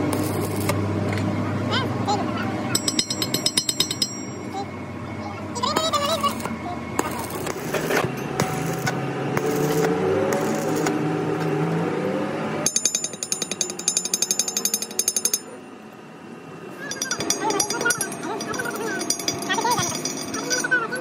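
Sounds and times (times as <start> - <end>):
machine noise with rising hum: 0.0 - 21.0
rapid metallic hammering: 2.8 - 4.4, 5.8 - 11.0, 16.9 - 20.9.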